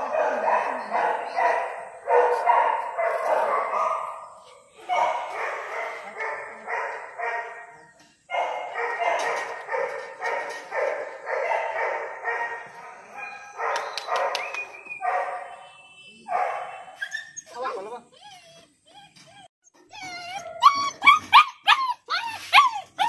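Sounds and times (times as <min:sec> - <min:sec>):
puppy barking: 0:00.0 - 0:04.3, 0:08.3 - 0:14.4, 0:15.0 - 0:15.6, 0:16.3 - 0:17.0.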